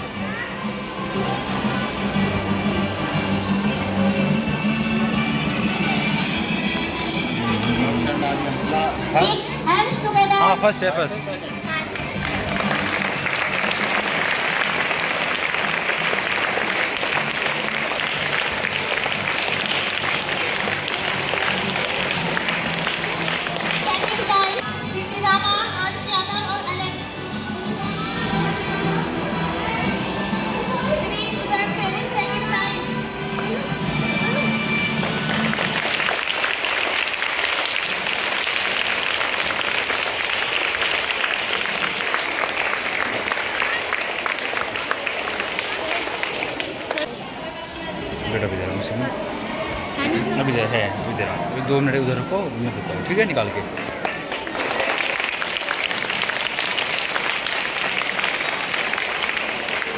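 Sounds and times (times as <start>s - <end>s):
audience applauding: 11.9s - 24.6s, 35.0s - 47.1s, 53.3s - 59.9s.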